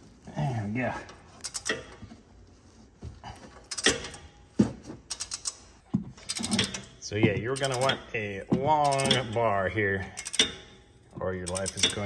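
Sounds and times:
ratchet wrench clicking: 1.4s - 2.0s, 5.1s - 5.7s, 10.2s - 10.7s, 11.5s - 12.0s.

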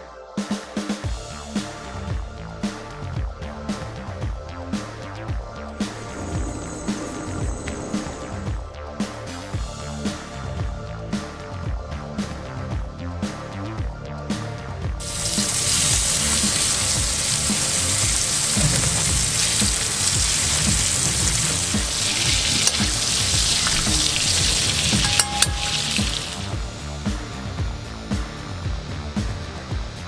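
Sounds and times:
background music with steady beat: 0.0s - 30.0s
meat sizzling in a frying pan: 15.0s - 26.6s.

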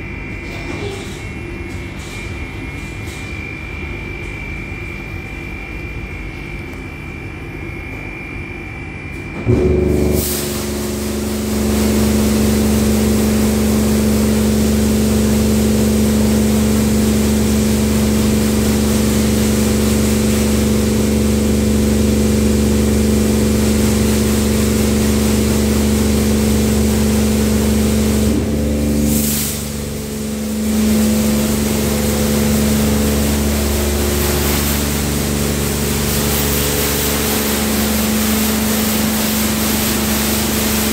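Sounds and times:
pump humming: 9.4s - 40.9s
water jets hissing against car: 9.6s - 40.9s.

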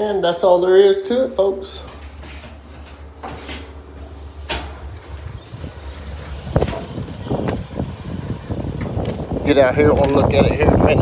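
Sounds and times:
steady low hum: 0.0s - 11.0s
footsteps: 1.5s - 9.4s.

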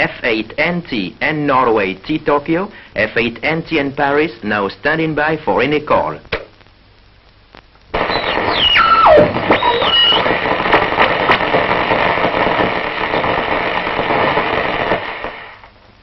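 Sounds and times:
radio static crackling hiss: 0.0s - 16.0s
radio whistle: 8.0s - 13.4s.

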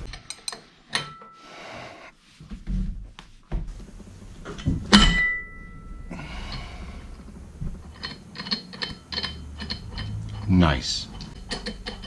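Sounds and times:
sharp metallic clank: 4.9s - 6.0s.

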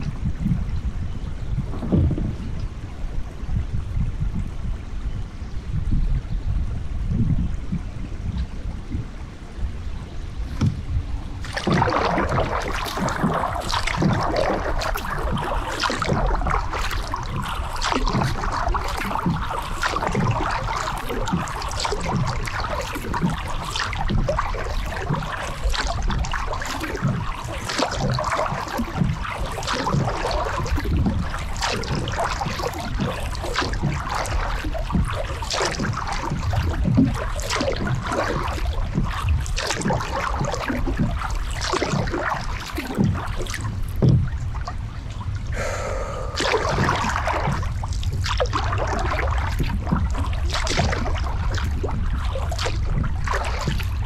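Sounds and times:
kayak paddle splashing water: 7.6s - 54.0s
water trickling: 9.9s - 54.0s
water dripping: 11.4s - 45.6s, 46.2s - 54.0s.

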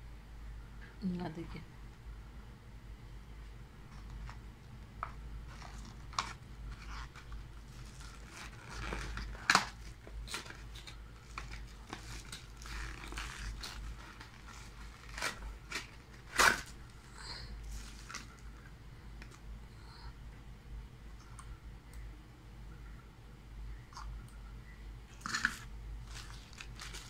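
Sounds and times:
cardboard rustling and scraping: 5.4s - 16.8s.

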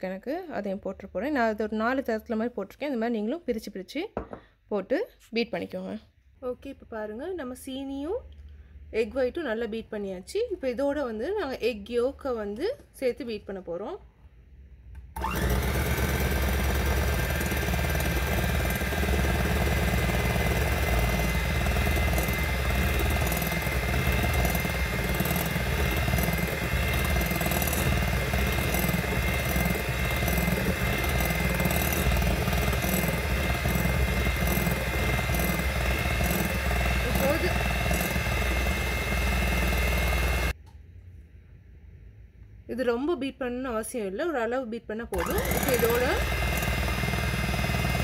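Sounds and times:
electric hand mixer whining: 15.2s - 40.6s, 45.2s - 48.0s.

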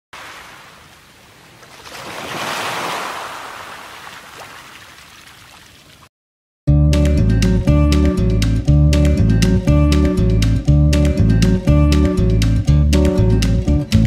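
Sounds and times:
surf washing over rocks: 0.2s - 5.7s.

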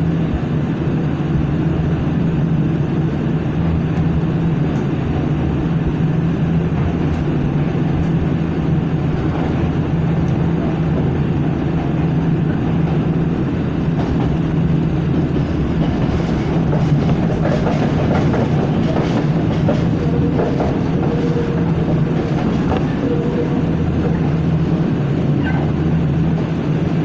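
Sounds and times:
train hum and rumble: 0.0s - 27.0s
wheels clicking over rail joints: 13.9s - 27.0s.

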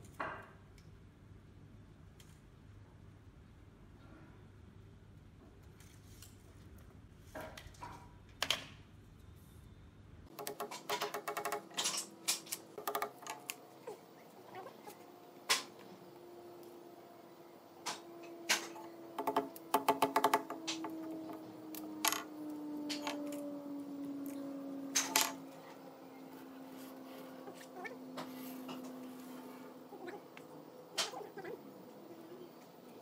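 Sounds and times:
faint steady hum: 0.0s - 33.0s
hammer tapping nail into wood: 10.4s - 11.8s, 19.2s - 21.4s.

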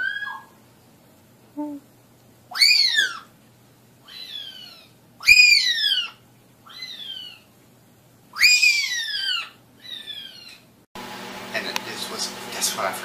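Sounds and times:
parrot whistle-like calls: 0.0s - 0.5s, 2.5s - 3.3s, 4.1s - 7.4s, 8.4s - 10.6s.

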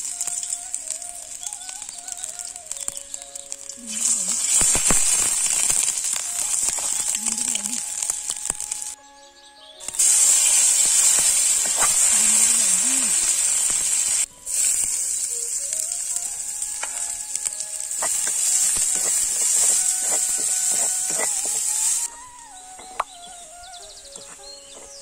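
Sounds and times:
onion sizzling in hot oil: 0.0s - 9.0s, 9.8s - 25.0s
wooden spoon stirring: 16.8s - 22.1s.

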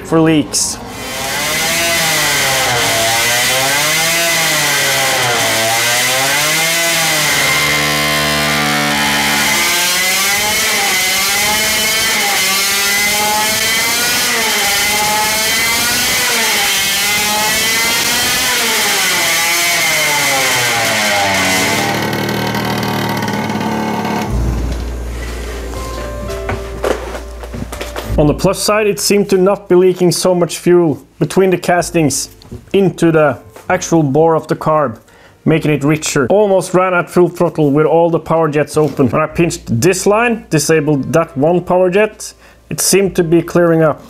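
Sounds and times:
two-stroke engine surging: 0.8s - 25.5s
steady high whine: 21.6s - 29.3s.

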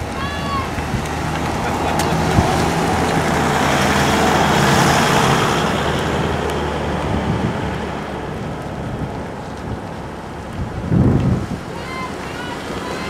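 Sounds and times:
vehicle driving past: 0.7s - 9.6s.

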